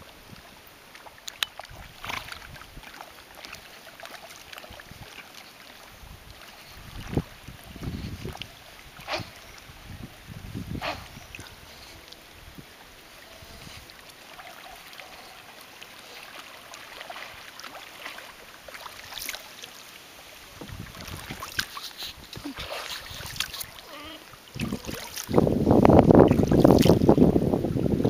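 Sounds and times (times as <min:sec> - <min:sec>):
river water lapping: 0:00.0 - 0:28.0
wind buffeting microphone: 0:06.0 - 0:12.8, 0:20.5 - 0:23.6, 0:24.5 - 0:28.0.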